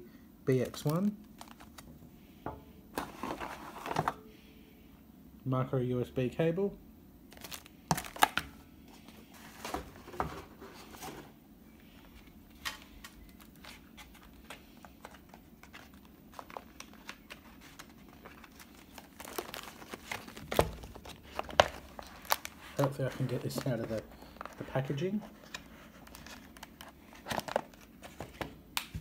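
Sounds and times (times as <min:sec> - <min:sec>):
plastic wrapping crinkling: 0:00.7 - 0:01.9, 0:07.3 - 0:08.5, 0:12.5 - 0:28.4.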